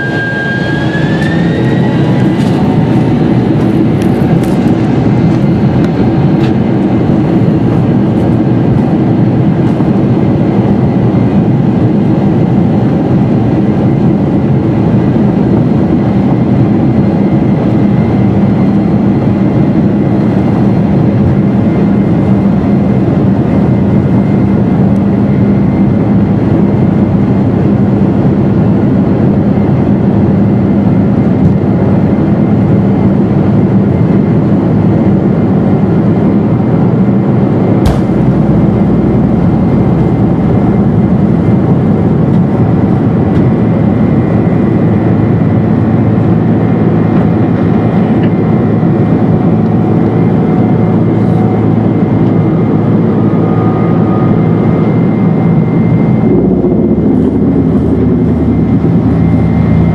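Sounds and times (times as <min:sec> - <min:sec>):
jet engines rumbling in cabin: 0:00.0 - 0:59.9
sharp thump: 0:37.8 - 0:40.4.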